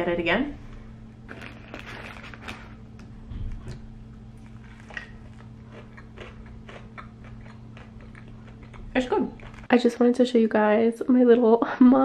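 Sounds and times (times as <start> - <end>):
chewing with crunches: 4.4 - 9.7.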